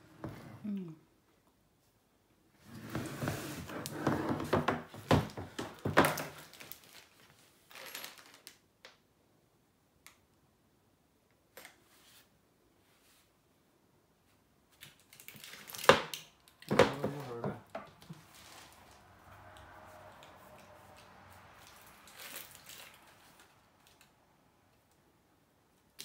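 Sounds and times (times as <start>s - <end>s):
plastic packaging rustling: 4.6s - 8.6s, 14.8s - 17.4s, 18.1s - 24.1s.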